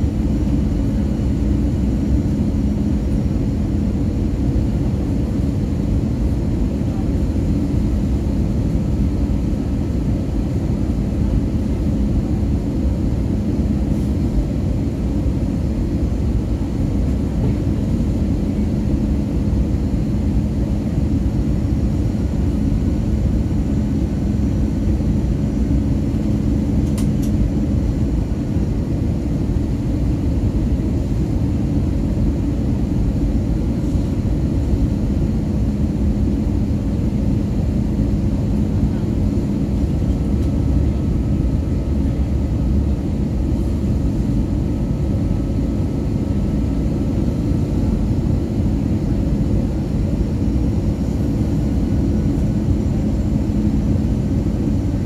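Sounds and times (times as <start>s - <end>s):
airliner cabin engine rumble: 0.0s - 55.0s
faint click: 26.8s - 27.4s.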